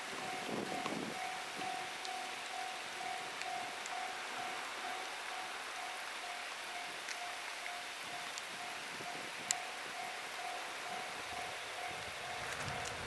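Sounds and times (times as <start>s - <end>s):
rain and wind hiss: 0.0s - 13.0s
level crossing alarm ringing: 0.2s - 7.9s
sharp tick: 9.4s - 9.6s.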